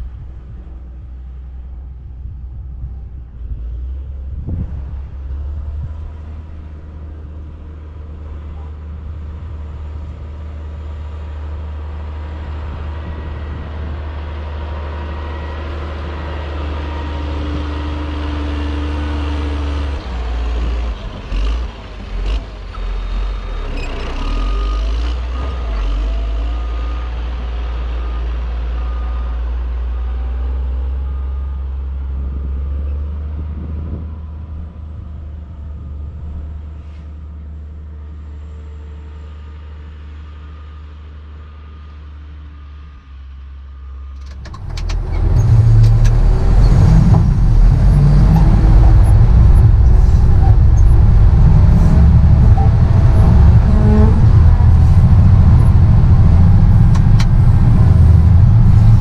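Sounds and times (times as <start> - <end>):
diesel engine running: 42.2 - 59.0
reversing alarm beeps: 52.2 - 54.0.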